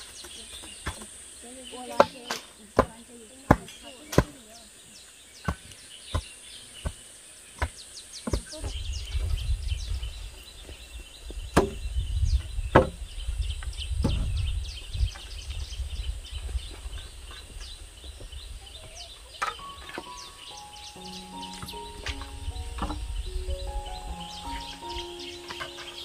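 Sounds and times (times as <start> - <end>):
fence post pounding knocks: 7.6 - 8.7, 11.6 - 11.8, 12.7 - 13.0, 21.4 - 23.1
wind rumble on microphone: 8.5 - 19.3, 21.7 - 24.9.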